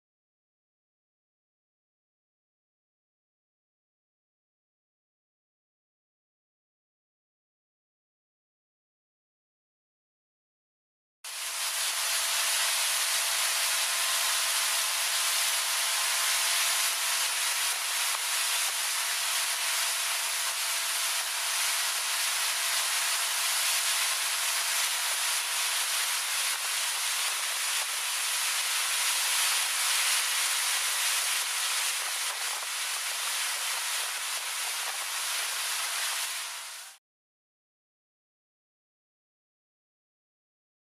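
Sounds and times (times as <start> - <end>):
water churning in boat wake: 11.3 - 37.0.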